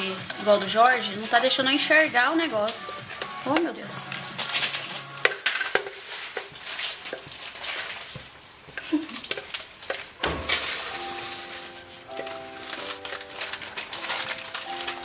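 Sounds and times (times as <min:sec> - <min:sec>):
background music: 0:00.0 - 0:05.7, 0:10.2 - 0:15.0
spatula scraping plastic jar: 0:00.0 - 0:10.0.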